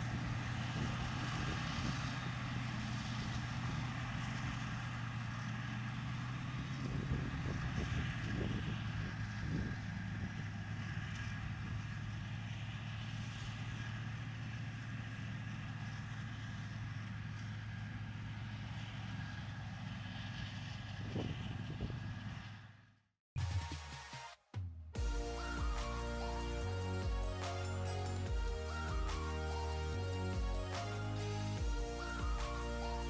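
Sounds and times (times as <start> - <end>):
forage harvester engine drone: 0.0 - 22.9, 25.0 - 33.0
high machine whine: 25.0 - 33.0.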